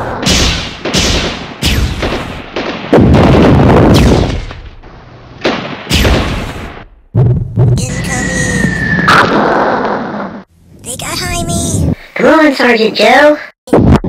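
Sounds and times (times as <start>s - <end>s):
gunshot and explosion blasts: 0.0s - 7.9s.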